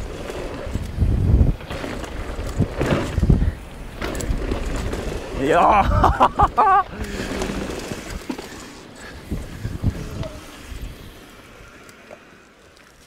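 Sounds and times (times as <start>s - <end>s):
wind rush on microphone: 0.0s - 8.3s, 9.0s - 11.7s
rider whooping: 5.3s - 8.8s.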